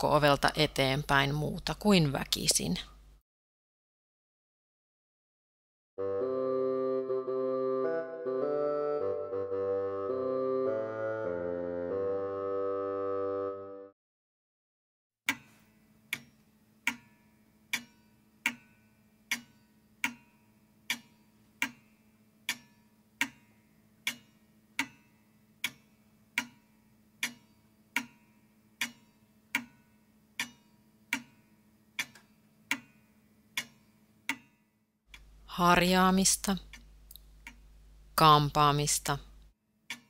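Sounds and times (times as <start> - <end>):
clock ticking: 19.3 - 25.0, 25.6 - 39.2.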